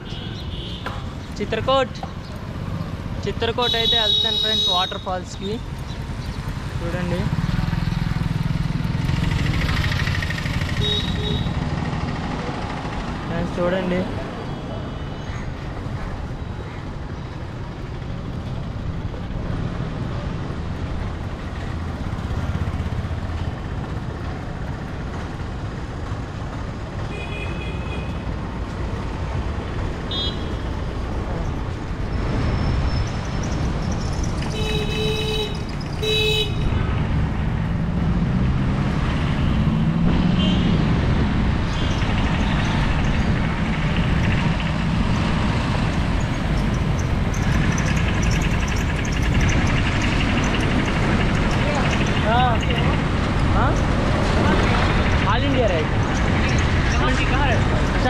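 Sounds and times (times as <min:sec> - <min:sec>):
rumble of passing vehicles: 0:00.0 - 0:58.0
car horns beeping: 0:03.6 - 0:05.3, 0:10.8 - 0:11.6, 0:30.1 - 0:30.6, 0:34.4 - 0:36.8.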